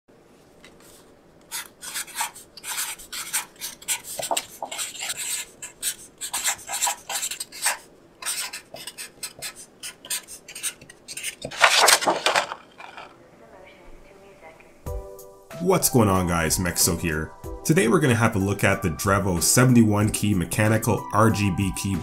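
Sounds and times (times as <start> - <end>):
card rustling: 0.4 - 13.2
marker scratching on paper: 1.5 - 13.1.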